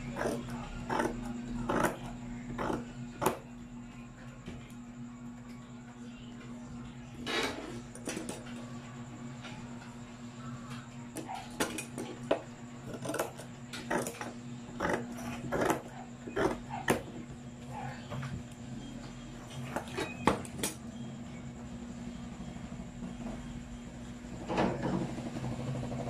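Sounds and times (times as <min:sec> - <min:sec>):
scissors cutting fabric: 0:00.0 - 0:03.4, 0:12.9 - 0:17.0.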